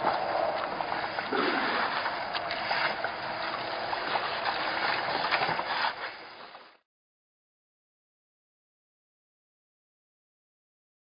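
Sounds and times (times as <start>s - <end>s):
water splashing and trickling: 0.0s - 6.8s.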